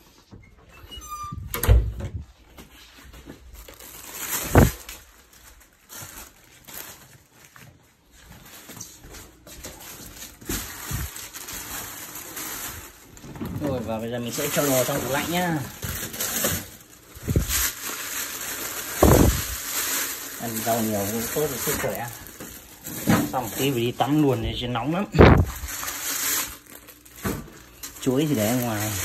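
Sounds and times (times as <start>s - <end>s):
plastic bags rustling: 2.3s - 29.0s
loud thumps: 19.0s - 19.6s, 25.2s - 25.7s.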